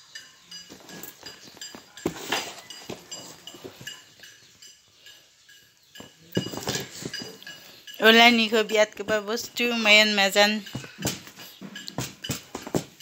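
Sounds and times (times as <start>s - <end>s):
parcel scraping: 0.5s - 4.7s
cardboard parcel handled: 0.7s - 4.0s.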